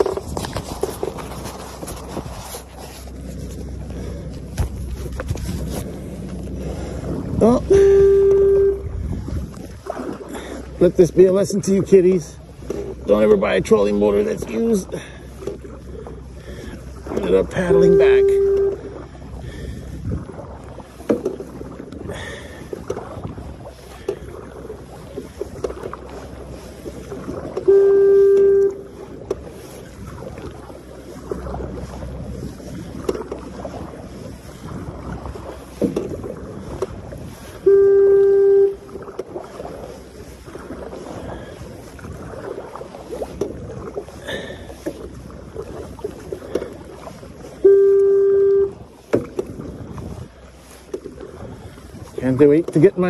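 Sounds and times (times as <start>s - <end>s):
wind on microphone: 0.0s - 10.8s, 15.6s - 53.0s
paddle splashing in water: 0.0s - 53.0s
loud steady tone: 7.4s - 9.0s, 17.4s - 19.0s, 27.6s - 28.9s, 37.6s - 38.9s, 47.6s - 48.8s.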